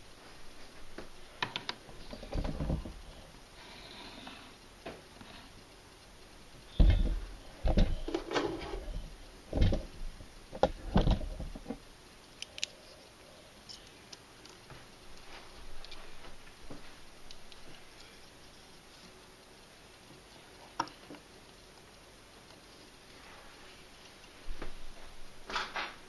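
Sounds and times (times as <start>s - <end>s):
dull thumps and knocks: 2.1s - 3.0s, 6.8s - 8.6s, 9.5s - 9.9s, 10.5s - 11.8s.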